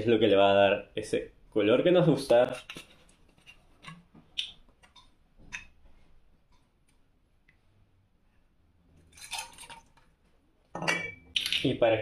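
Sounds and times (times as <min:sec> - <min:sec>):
glass bottle clicks and knocks: 0:10.8 - 0:11.2.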